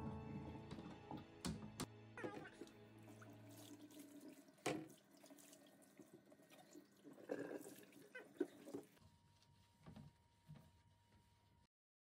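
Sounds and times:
tap running into a sink: 0:04.6 - 0:05.0.

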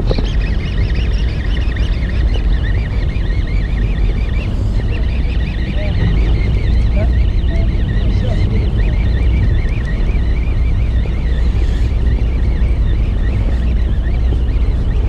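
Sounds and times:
boat engine rumble: 0:00.0 - 0:15.0
high wavering whine: 0:00.0 - 0:15.0
wind on microphone: 0:00.0 - 0:15.0.

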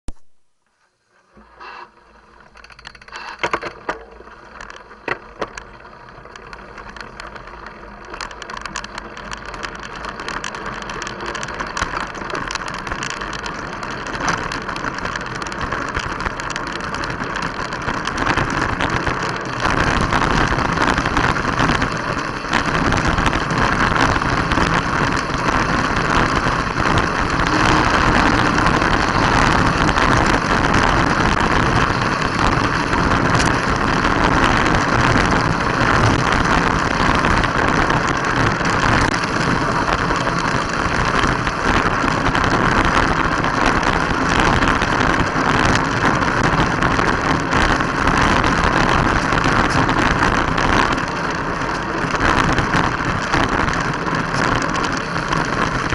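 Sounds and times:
bike tyres rolling on dirt: 0:00.1 - 0:55.9
wind: 0:00.1 - 0:55.9
bike and mount rattling: 0:01.0 - 0:55.9.

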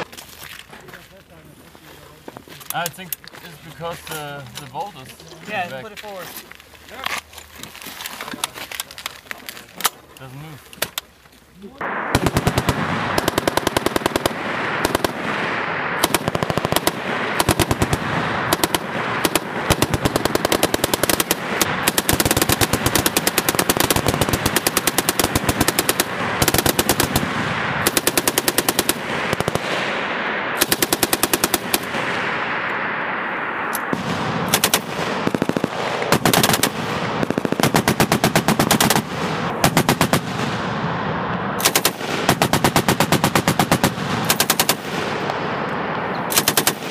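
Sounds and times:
machine guns firing bursts: 0:12.2 - 0:29.9, 0:30.6 - 0:32.2, 0:33.9 - 0:40.5, 0:41.6 - 0:45.2, 0:46.3 - 0:46.9.

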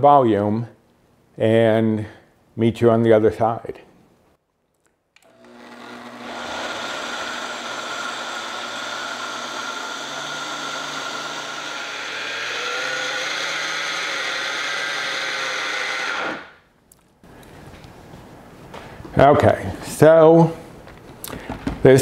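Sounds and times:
blender motor running: 0:05.2 - 0:16.6.

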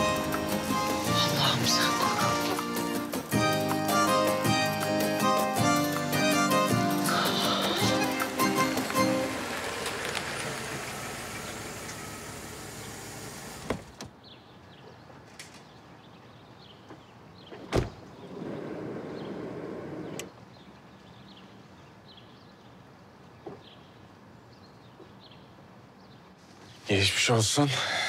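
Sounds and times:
music: 0:00.0 - 0:09.4
street ambience: 0:00.0 - 0:28.0
car door slamming: 0:13.4 - 0:14.1, 0:17.5 - 0:18.6.

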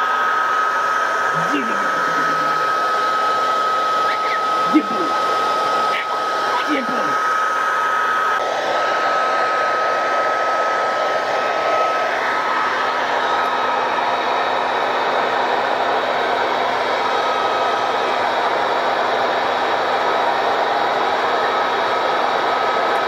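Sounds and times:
thin steady whine: 0:00.0 - 0:08.3
short voice sounds: 0:01.4 - 0:02.8.

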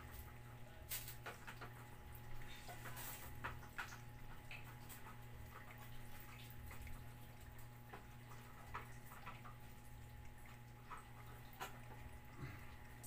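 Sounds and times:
steady low hum: 0:00.0 - 0:13.0
cats chewing and licking: 0:00.1 - 0:13.0.

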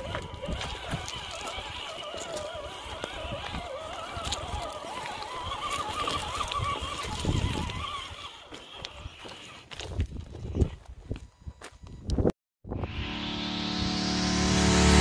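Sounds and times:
electric motor whining: 0:00.0 - 0:09.8
tyres clicking on stones: 0:00.0 - 0:10.4.

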